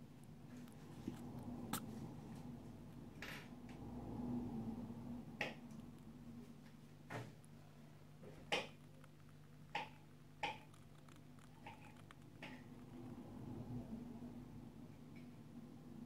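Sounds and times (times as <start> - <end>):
rat clicking and knocking in cage: 8.4 - 13.0.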